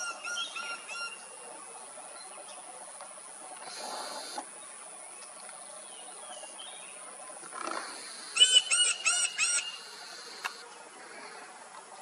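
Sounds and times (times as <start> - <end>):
woodpecker calling: 7.6 - 10.7.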